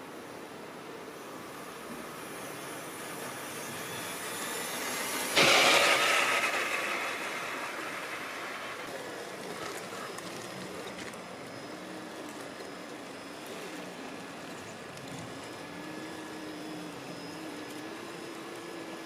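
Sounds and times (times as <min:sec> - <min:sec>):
electric motor and gears whining: 0:00.0 - 0:19.0
driving over dry leaves: 0:05.4 - 0:11.4.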